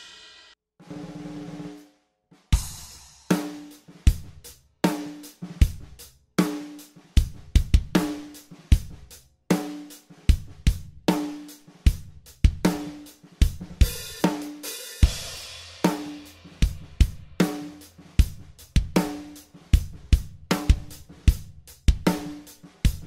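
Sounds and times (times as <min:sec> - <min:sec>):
crash cymbal ringing: 0:00.0 - 0:00.6
drum kit groove: 0:00.0 - 0:23.0.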